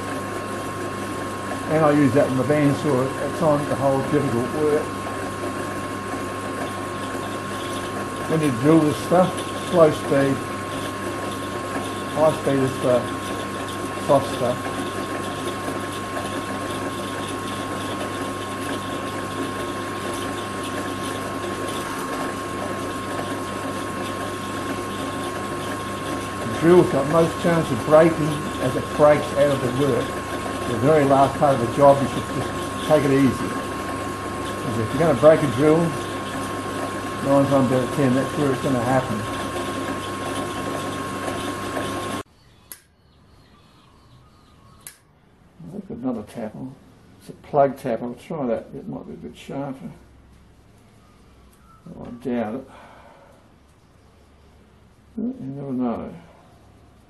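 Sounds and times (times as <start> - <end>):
drill press motor humming: 0.0 - 42.9, 50.0 - 55.2
thin constant whine: 0.0 - 57.0
sharp click: 42.7 - 42.9, 44.8 - 45.0.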